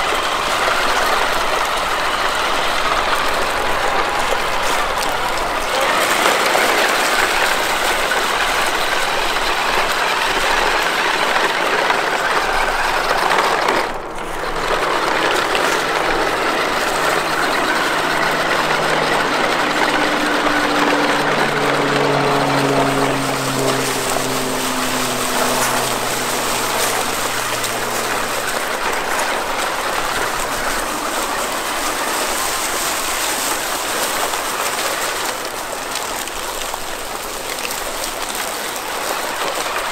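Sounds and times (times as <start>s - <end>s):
electric motor whine: 6.1s - 37.3s
tyres crunching on dry leaves: 10.6s - 39.9s.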